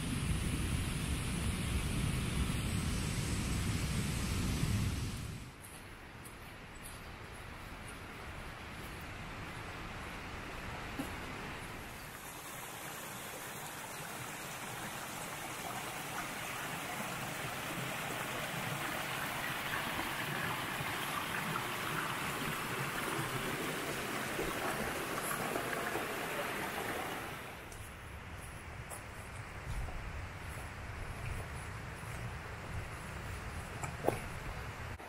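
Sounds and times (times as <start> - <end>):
stream flowing: 8.2 - 27.8.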